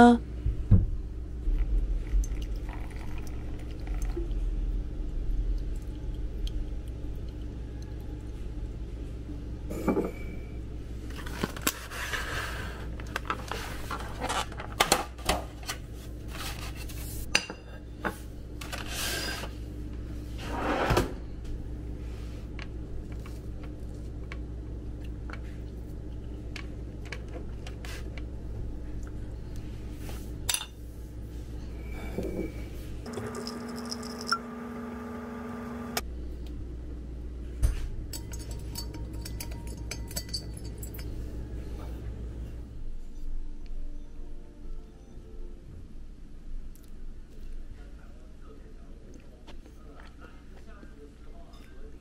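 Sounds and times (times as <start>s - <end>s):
steady low hum: 0.0s - 14.2s, 19.4s - 44.4s.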